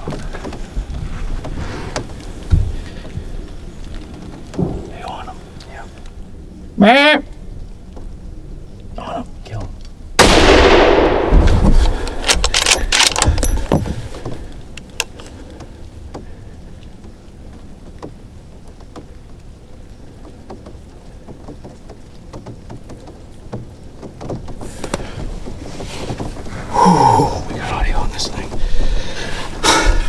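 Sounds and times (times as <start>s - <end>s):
sharp clicks and knocks: 0.0s - 6.2s, 11.3s - 26.5s
faint steady hiss: 0.0s - 30.0s
rifle shot echoing: 10.2s - 13.2s.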